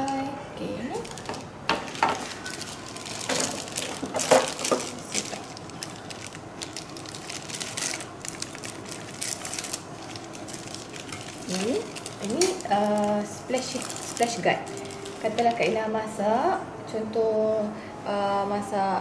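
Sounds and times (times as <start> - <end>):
plastic wrapping crinkling: 0.8 - 15.8.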